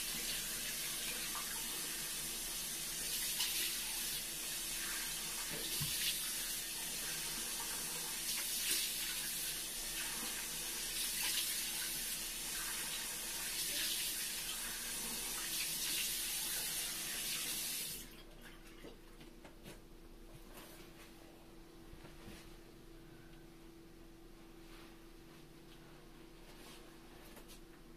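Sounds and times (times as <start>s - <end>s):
faucet running: 0.0s - 18.2s.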